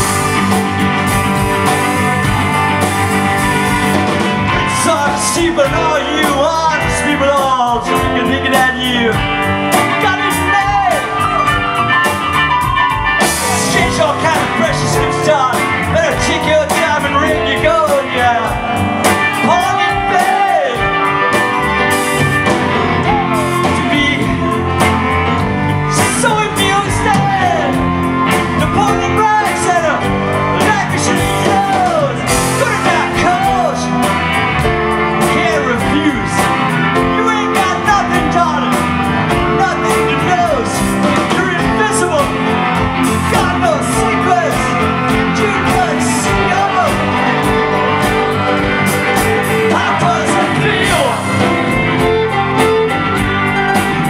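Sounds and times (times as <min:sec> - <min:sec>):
electric guitar: 0:00.0 - 0:54.0
upright bass: 0:00.0 - 0:54.0
drum beat: 0:16.1 - 0:36.4, 0:39.3 - 0:54.0
lead vocal singing: 0:22.6 - 0:27.8, 0:28.5 - 0:38.7, 0:39.3 - 0:52.2
fiddle: 0:33.5 - 0:54.0.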